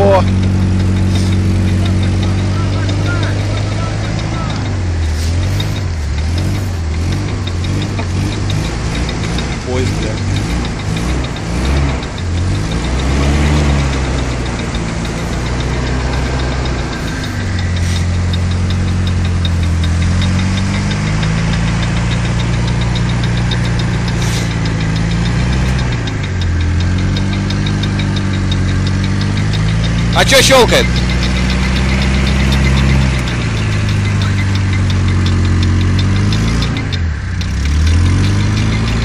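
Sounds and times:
fast regular clicking: 0.0 - 39.0
pickup truck engine revving: 0.0 - 39.0.

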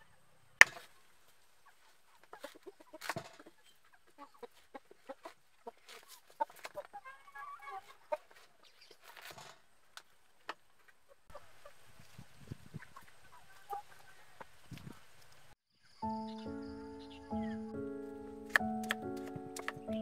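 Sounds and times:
chickens clucking: 0.0 - 9.3, 10.8 - 15.0.

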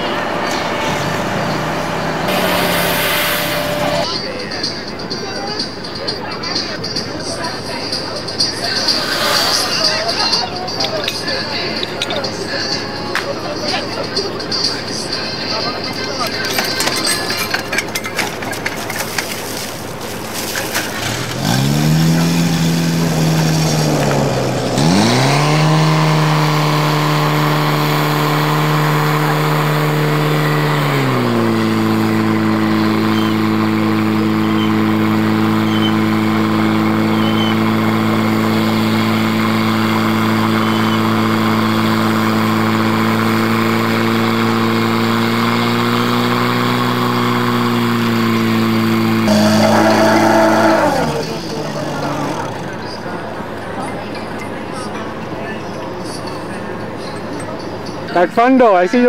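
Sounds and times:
fire pump engine running: 0.0 - 58.5
clatter: 16.2 - 25.4.

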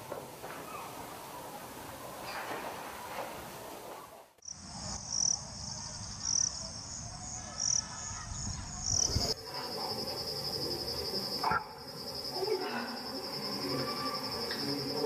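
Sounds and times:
crickets trilling: 4.4 - 15.0
fast-pulsing cricket trill: 4.4 - 15.0.

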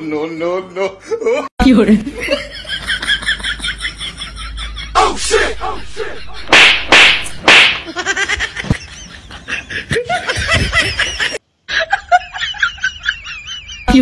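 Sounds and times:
laugh track: 0.0 - 6.6, 7.8 - 14.0
slap hit sound effect: 5.0 - 8.0.

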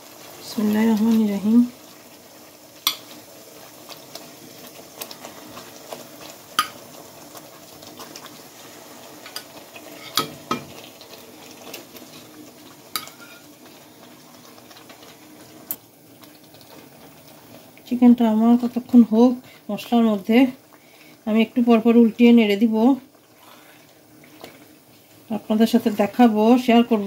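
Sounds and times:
low sizzle: 0.0 - 27.0
metal tongs clinking on pot: 2.8 - 3.1, 9.3 - 10.6, 13.0 - 13.4.

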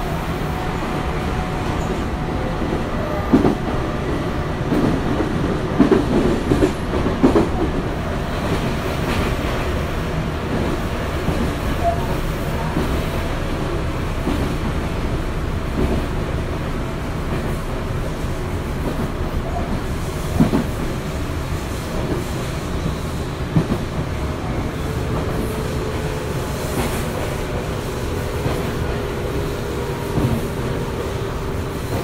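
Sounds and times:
train rumble: 0.0 - 32.0.

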